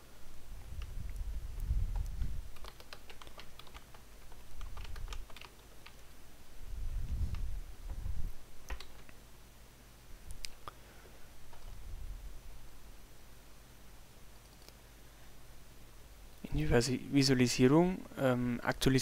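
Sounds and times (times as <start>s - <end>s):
keyboard keystroke clicks: 1.9s - 6.0s, 8.7s - 9.2s.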